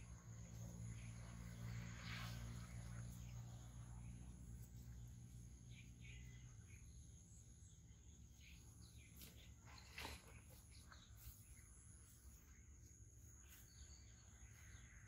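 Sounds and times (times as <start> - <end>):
steady high insect hum: 0.0 - 15.0
bird chirps: 0.6 - 12.6.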